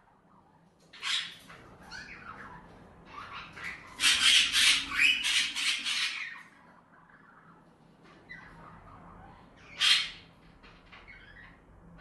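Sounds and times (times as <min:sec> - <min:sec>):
cockatiel chirps: 0:00.3 - 0:07.6, 0:08.2 - 0:10.3
cockatiels calling harshly: 0:00.9 - 0:12.0.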